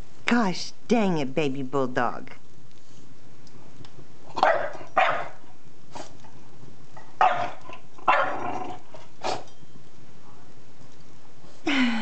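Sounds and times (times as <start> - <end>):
puppy barking: 4.4 - 5.5, 7.2 - 8.6.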